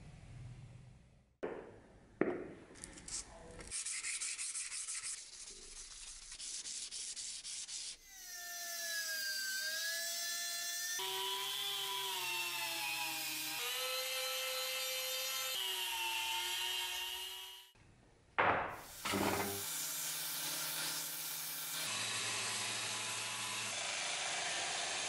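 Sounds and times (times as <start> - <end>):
sandpaper rubbing on steel: 3.1 - 8.0.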